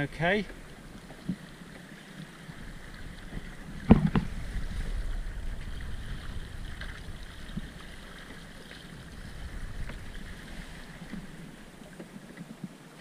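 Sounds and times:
wind rumbling on microphone: 0.0s - 12.8s
water rushing and gurgling: 0.0s - 13.0s.

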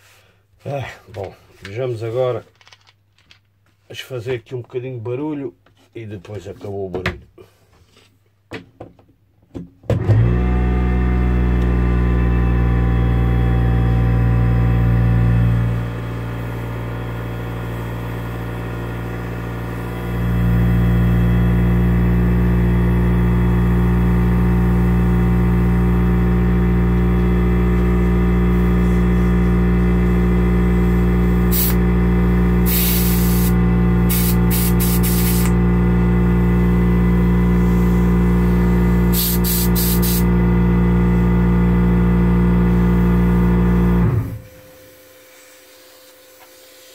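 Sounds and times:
airbrush compressor humming: 14.8s - 46.9s
short hisses of escaping air: 31.5s - 31.8s, 32.7s - 35.5s, 39.1s - 40.2s.

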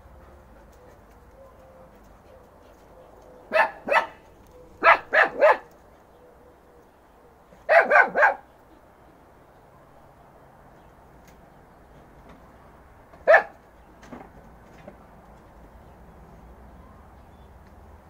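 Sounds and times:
puppy barking: 3.4s - 5.7s, 7.6s - 8.5s, 13.2s - 13.6s.

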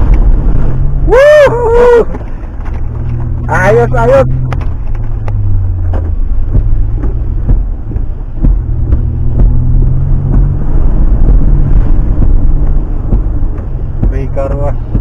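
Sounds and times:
vehicle engine running: 0.0s - 15.0s
water splashing against vehicle: 0.0s - 15.0s
knocks and thumps: 4.3s - 15.0s.

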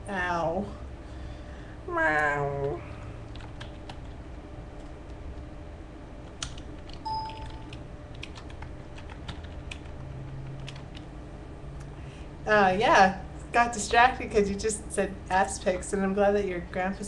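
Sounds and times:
short tone: 7.1s - 7.7s.

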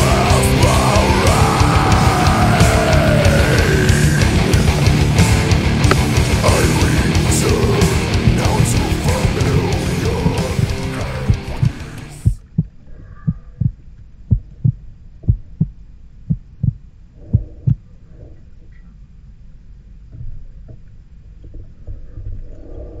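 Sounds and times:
heartbeat thumps: 8.1s - 17.9s, 20.1s - 20.8s.

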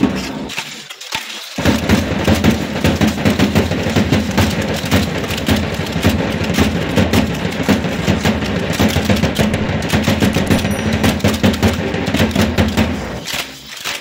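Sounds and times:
gourd rattles shaking: 0.0s - 14.0s
drum beating rapid rhythm: 1.6s - 13.6s.

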